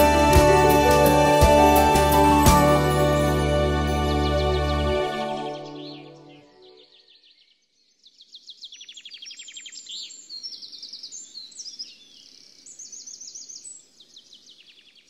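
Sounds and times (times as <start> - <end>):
songbirds chirping and trilling: 2.0 - 15.0.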